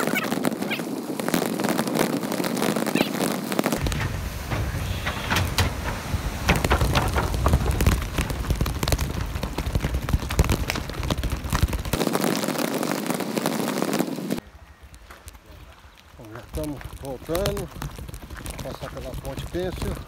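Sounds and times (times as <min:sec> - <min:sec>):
bike tyres on gravel: 0:00.0 - 0:20.0
bike rattling: 0:03.8 - 0:12.0, 0:16.2 - 0:20.0
low rumble: 0:03.8 - 0:12.0.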